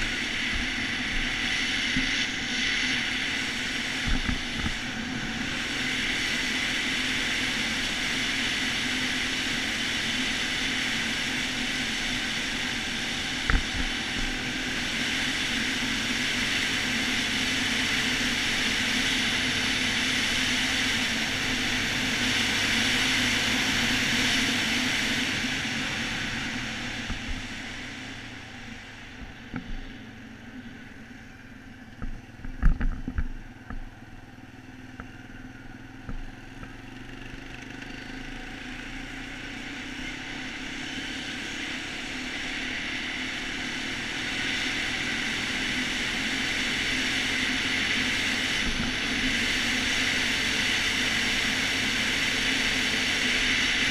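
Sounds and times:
rush of noise: 0.0 - 34.0
quad bike engine running: 0.0 - 53.9.

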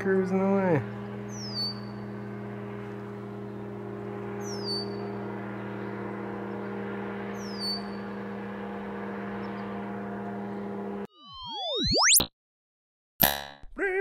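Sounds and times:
paraglider engine droning: 0.0 - 11.1
bird whistling: 1.3 - 2.0, 4.4 - 5.0, 7.4 - 8.0.

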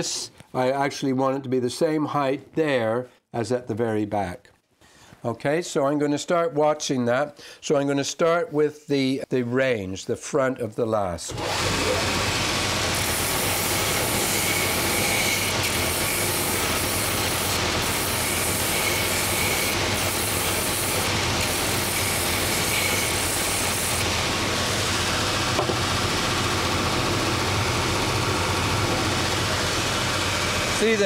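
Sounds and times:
belt sander grinding wood: 11.3 - 31.0.

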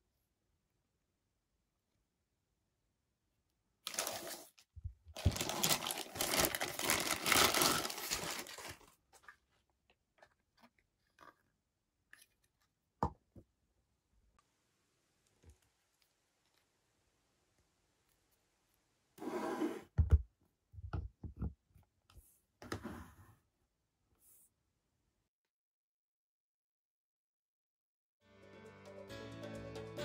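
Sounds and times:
plastic packaging crinkling and tearing: 3.8 - 4.6, 5.2 - 9.2.

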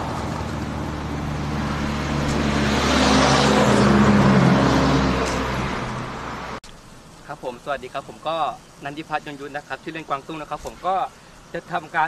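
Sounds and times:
truck driving past: 0.0 - 6.6.

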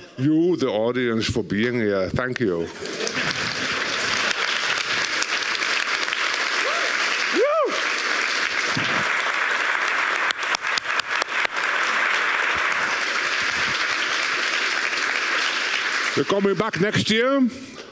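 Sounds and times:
large audience applauding: 2.7 - 17.3
person whooping: 6.6 - 7.9.

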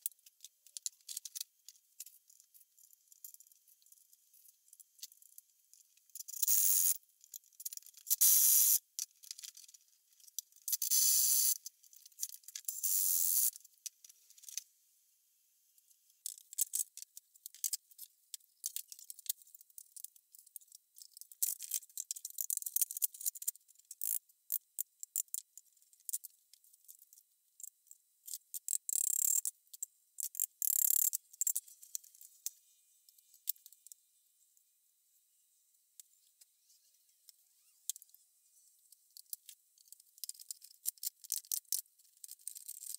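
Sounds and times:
small clicks and taps: 38.8 - 42.9.

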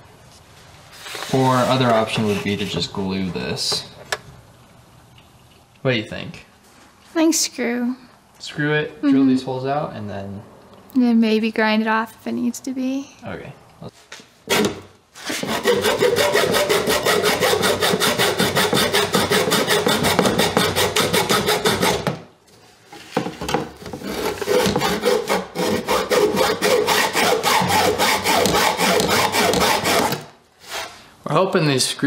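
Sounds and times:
hacksaw cutting metal: 14.5 - 22.2, 24.0 - 30.3.

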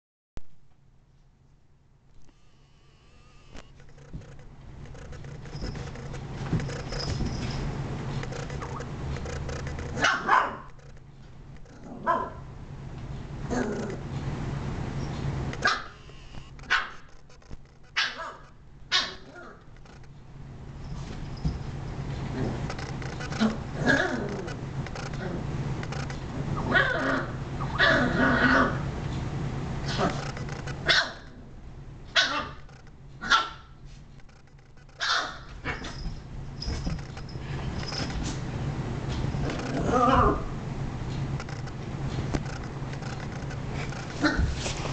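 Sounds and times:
dog barking: 10.0 - 10.7, 12.0 - 12.4, 15.6 - 16.0, 16.7 - 17.0, 18.0 - 19.6, 30.8 - 31.3, 32.2 - 32.6, 33.2 - 33.7, 35.0 - 35.9.

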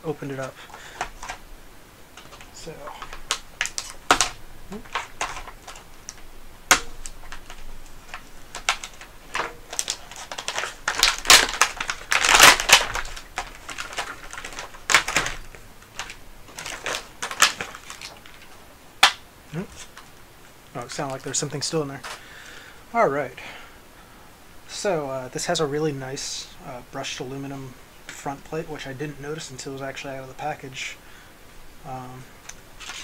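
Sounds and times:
plastic packaging crackling: 0.1 - 22.2, 32.4 - 33.0.

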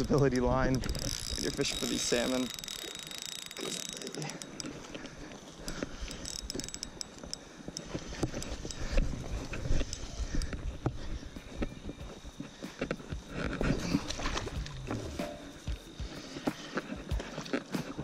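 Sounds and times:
fishing reel clicking: 0.0 - 18.0.

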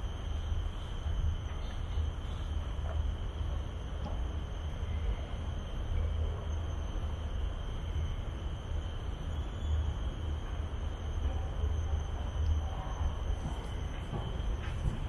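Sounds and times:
high-pitched insect drone: 4.5 - 14.6.

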